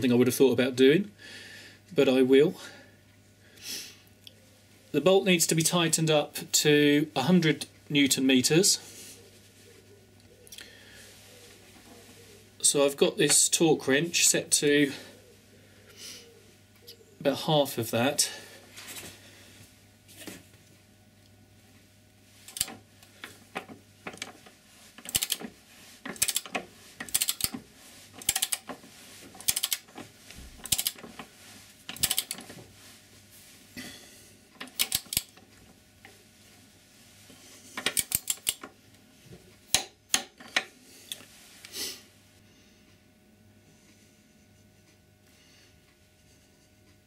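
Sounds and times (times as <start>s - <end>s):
ratcheting torque wrench clicking: 22.5s - 22.8s, 25.0s - 25.4s, 26.1s - 27.6s, 28.2s - 28.7s, 29.4s - 29.9s, 30.6s - 31.0s, 31.9s - 32.4s, 34.7s - 35.3s, 37.9s - 38.6s.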